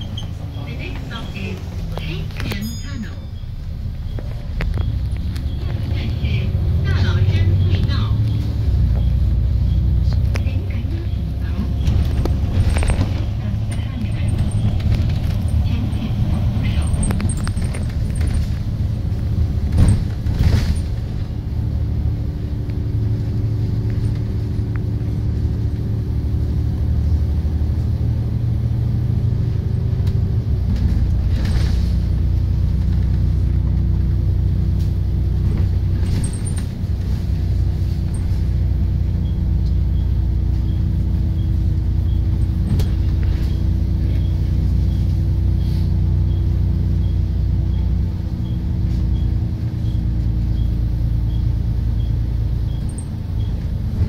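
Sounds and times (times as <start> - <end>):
bus engine drone: 0.0 - 54.0
short rattles: 11.7 - 21.3.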